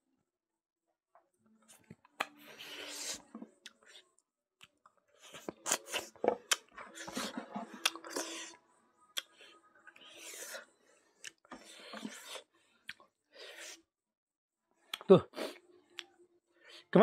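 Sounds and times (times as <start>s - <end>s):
person chewing: 1.7s - 13.8s.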